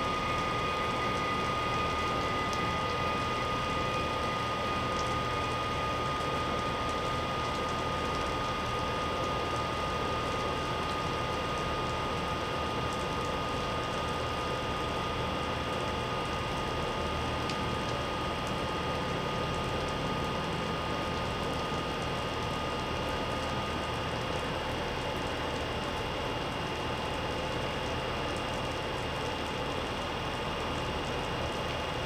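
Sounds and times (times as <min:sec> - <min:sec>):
electric train idling hum: 0:00.0 - 0:06.7
high whine: 0:00.0 - 0:06.8.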